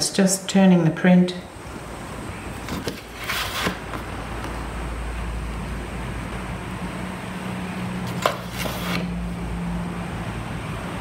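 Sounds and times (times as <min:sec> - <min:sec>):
blade scraping paper: 0:02.6 - 0:03.9, 0:08.1 - 0:09.2
craft knife cutting paper: 0:02.6 - 0:03.9, 0:08.1 - 0:09.2.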